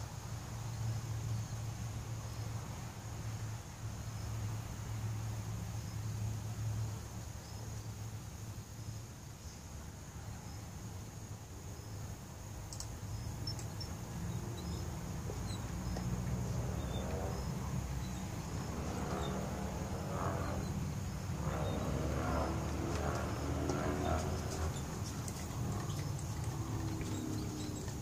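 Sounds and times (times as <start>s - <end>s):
insects chirring: 5.8s - 28.0s
low outdoor rumble: 13.0s - 28.0s.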